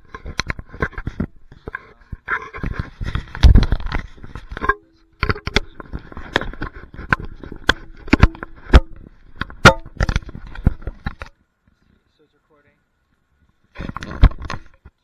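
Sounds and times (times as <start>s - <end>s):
clicks and rubbing on microphone: 0.0s - 12.0s, 13.1s - 15.0s
faint steady hum: 0.0s - 15.0s
heavy thumps: 2.6s - 11.2s.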